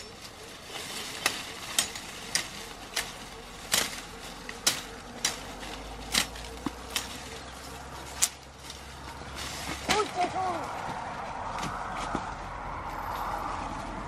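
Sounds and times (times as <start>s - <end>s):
machete chopping bamboo: 1.2s - 7.2s.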